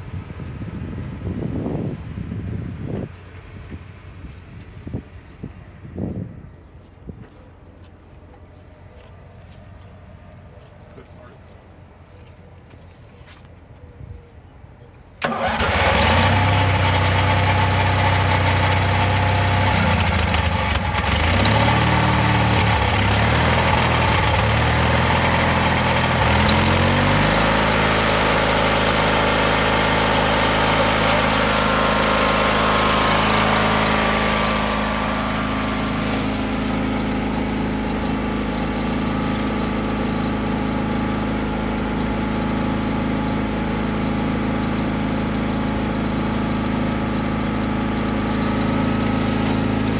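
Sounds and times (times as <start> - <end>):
small gasoline engine running: 15.2 - 49.9.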